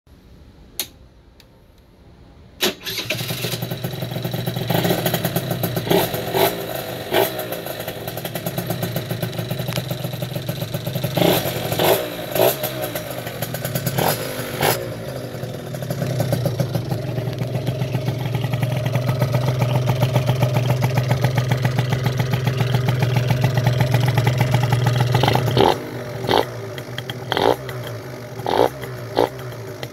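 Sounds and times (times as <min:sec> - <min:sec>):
scooter engine revving: 0:02.8 - 0:29.9.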